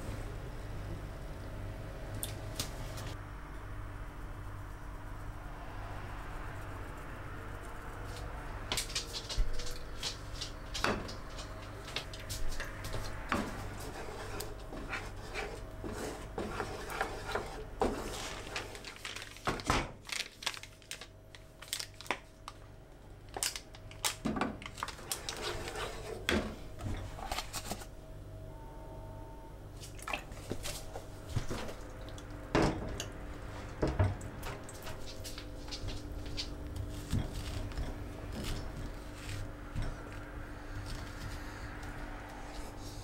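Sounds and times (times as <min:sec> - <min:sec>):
low steady hum: 0:00.0 - 0:19.4, 0:20.1 - 0:43.0
spatula scraping a frying pan: 0:13.4 - 0:18.6.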